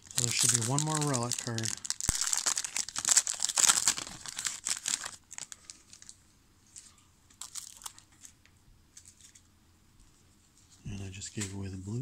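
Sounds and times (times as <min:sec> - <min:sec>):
card pack wrapper crinkling and tearing: 0:00.0 - 0:08.4.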